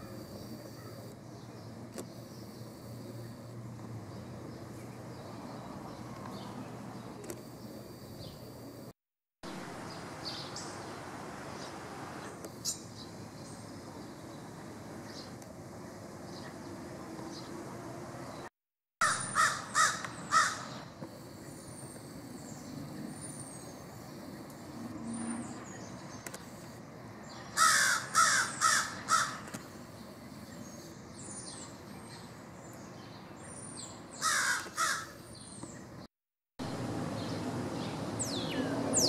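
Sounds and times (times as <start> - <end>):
crow cawing: 19.0 - 20.8, 27.6 - 29.5, 34.2 - 35.2.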